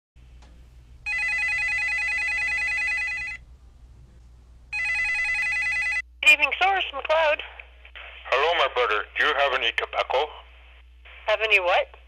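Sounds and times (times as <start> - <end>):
telephone electronic trilling ring: 1.1 - 3.4, 4.7 - 6.0.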